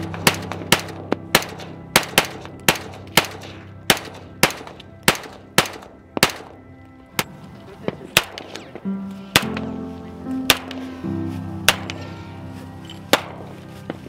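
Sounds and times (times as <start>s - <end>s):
background music: 0.0s - 14.0s
rifle gunfire: 0.2s - 6.6s.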